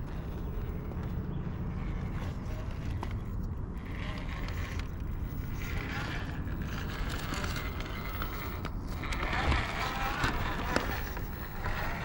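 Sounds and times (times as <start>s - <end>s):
rc car drivetrain whirring: 0.0s - 12.0s
wind rumble on microphone: 0.0s - 12.0s
tyres scraping over rock: 3.8s - 12.0s.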